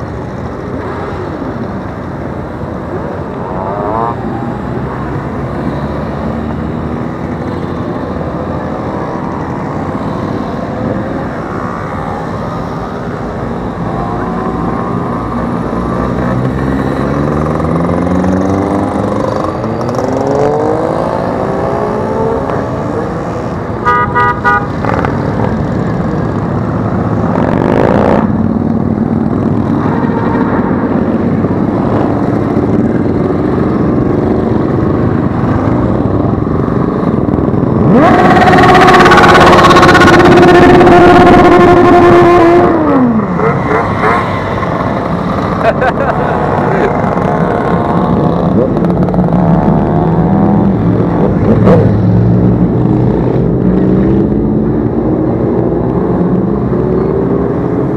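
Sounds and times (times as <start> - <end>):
horn tooting: 23.8 - 25.1, 38.0 - 42.8.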